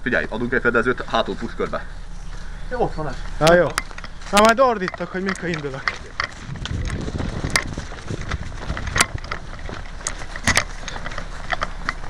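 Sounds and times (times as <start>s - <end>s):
rustling and handling noise: 1.3s - 12.0s.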